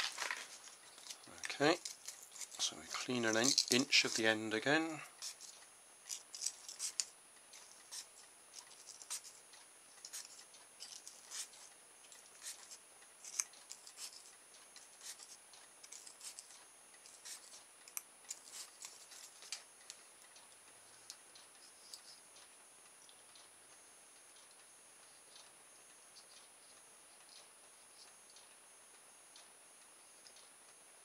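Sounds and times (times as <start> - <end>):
sandpaper scratching on wire: 1.6 - 4.4, 6.1 - 7.1.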